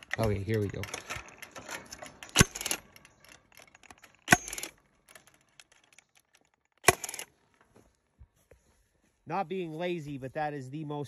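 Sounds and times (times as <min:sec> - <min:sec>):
brief metallic rattle: 0:00.0 - 0:07.3
fence stapler firing: 0:01.0 - 0:07.3.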